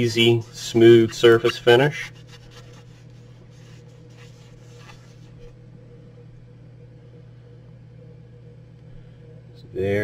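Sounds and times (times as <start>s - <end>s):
steady low hum: 0.0s - 10.0s
cloth rubbing on plastic: 0.3s - 5.5s.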